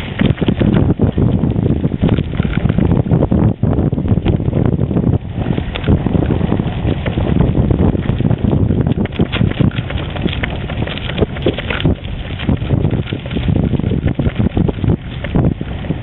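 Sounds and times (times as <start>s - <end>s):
bicycle knocks and rattles: 0.0s - 16.0s
bicycle tyres crunching on gravel: 0.0s - 16.0s
wind buffeting microphone: 0.0s - 16.0s.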